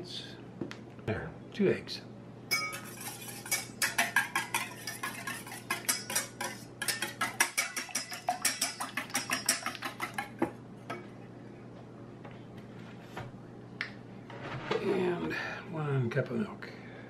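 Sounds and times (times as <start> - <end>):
whisk clicking in metal bowl: 2.5 - 10.5
whisk tapping: 2.5 - 10.6.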